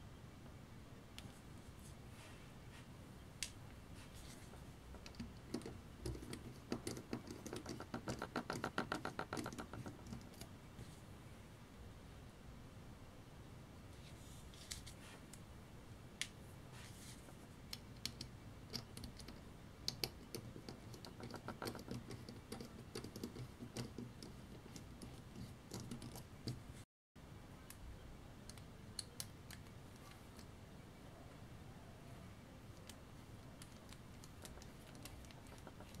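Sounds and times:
screwdriver clicking and scratching: 0:05.0 - 0:10.5, 0:17.7 - 0:26.6, 0:33.6 - 0:36.0.

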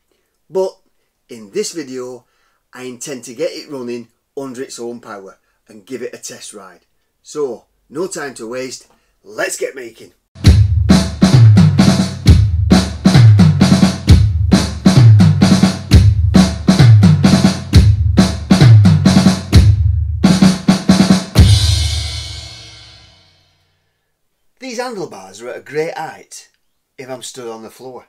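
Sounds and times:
heavy bass drum hits: 0:10.4 - 0:23.1
drum beat intro music: 0:10.4 - 0:23.5
cymbal crash ringing: 0:21.4 - 0:23.6.

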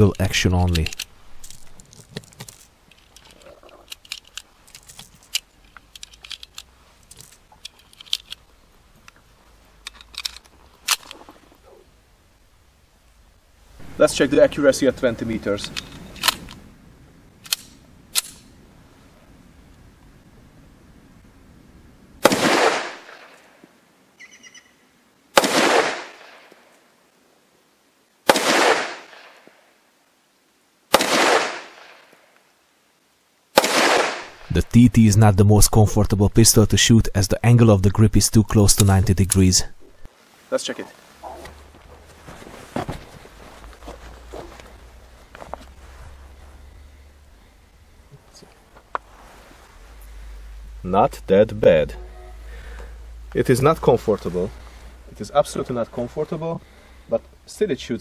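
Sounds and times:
pistol shots echoing: 0:22.2 - 0:23.3, 0:25.4 - 0:26.4, 0:28.3 - 0:29.4, 0:30.9 - 0:32.0, 0:33.6 - 0:34.4.

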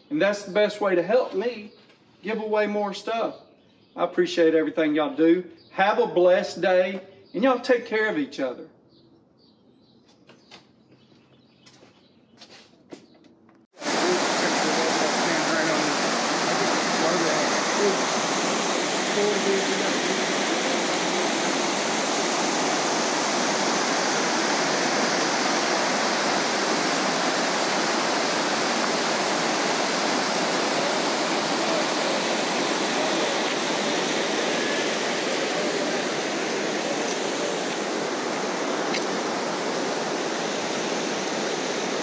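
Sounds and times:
steady rushing noise: 0:13.8 - 0:42.0.

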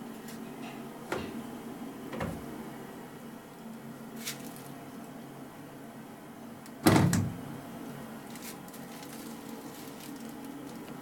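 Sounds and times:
faint steady hum: 0:00.0 - 0:11.0
plastic drawer clunk: 0:01.1 - 0:01.4, 0:02.1 - 0:02.5.

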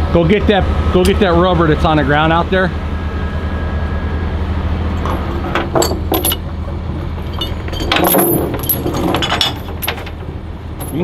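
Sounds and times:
low steady hum: 0:00.0 - 0:11.0
metal chain clinking: 0:05.0 - 0:11.0.

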